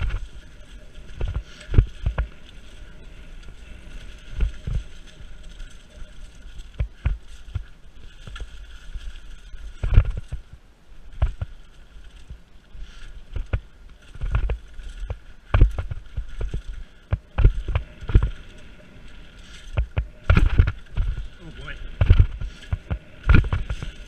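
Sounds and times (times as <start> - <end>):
bike thumps and rattles: 13.3 - 18.4, 19.6 - 21.3.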